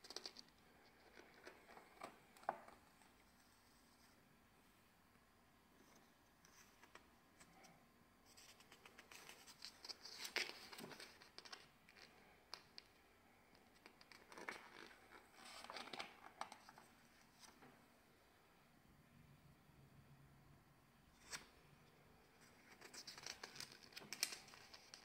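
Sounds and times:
glossy pages rustling: 8.3s - 12.1s, 13.9s - 17.6s, 22.6s - 25.0s.

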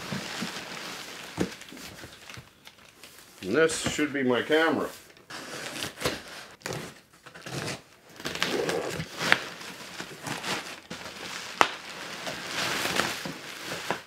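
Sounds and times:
bubble wrap crinkling: 0.0s - 3.6s, 7.4s - 14.0s
packing paper rustling: 0.0s - 14.0s.

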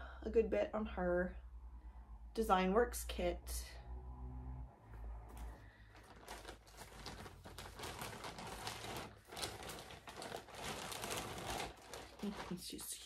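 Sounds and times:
fabric crinkling and rustling: 5.3s - 13.0s.

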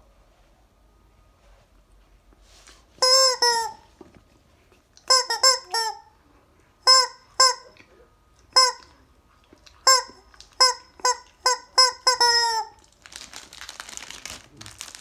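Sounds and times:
rubber chicken toy squawks: 3.0s - 3.9s, 5.1s - 6.1s, 6.8s - 7.7s, 8.5s - 8.9s, 9.8s - 12.8s.

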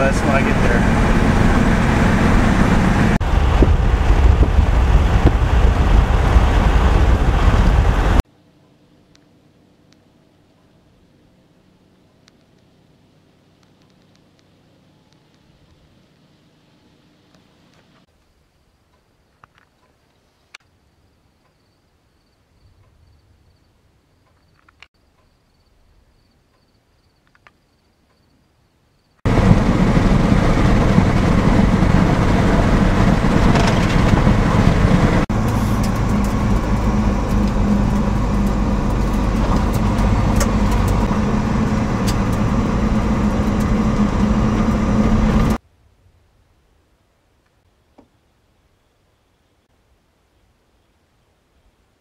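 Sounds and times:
car engine hum and road noise: 0.0s - 8.2s, 29.2s - 45.6s.

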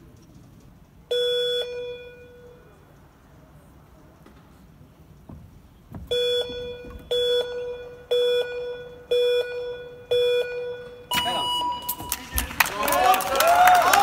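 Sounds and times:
countdown beeps: 6.1s - 12.3s.

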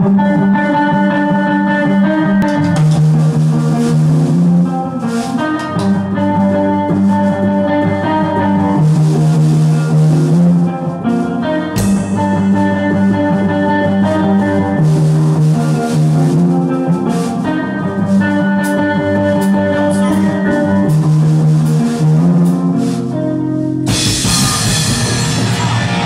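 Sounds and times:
drum kit: 0.0s - 26.0s
electric guitars playing chords: 0.0s - 26.0s
cymbal crash: 23.9s - 26.0s.

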